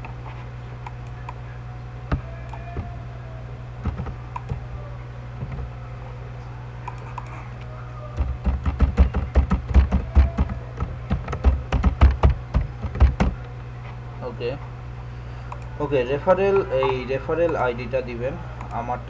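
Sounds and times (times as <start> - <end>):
steady low hum: 0.0 - 19.0
computer keyboard typing: 3.8 - 4.6, 8.2 - 13.4.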